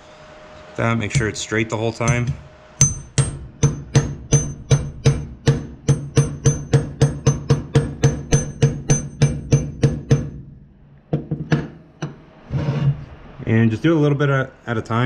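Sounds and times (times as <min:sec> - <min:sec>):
hammer tapping on metal socket: 0:02.0 - 0:10.4.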